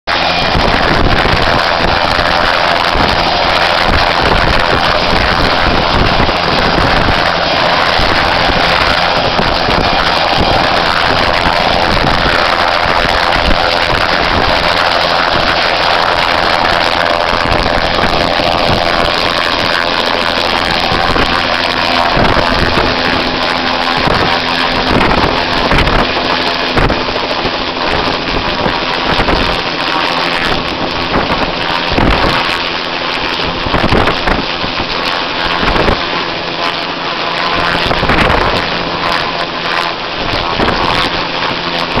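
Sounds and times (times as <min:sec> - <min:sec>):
rotor downwash thumping microphone: 0:00.1 - 0:32.6
helicopter engine and rotor: 0:00.1 - 0:42.0.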